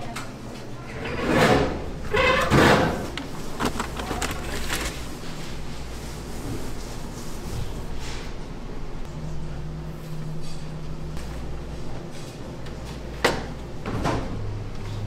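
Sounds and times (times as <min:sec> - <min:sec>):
kitchen drawer sliding out: 0:00.9 - 0:05.1
paper sack rustling: 0:02.0 - 0:07.0.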